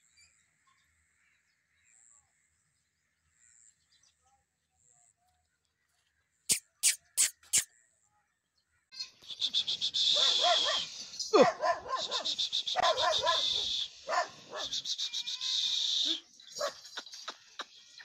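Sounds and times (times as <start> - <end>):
dog barking and whining: 10.2 - 14.7
high fluttering hiss: 12.0 - 16.3.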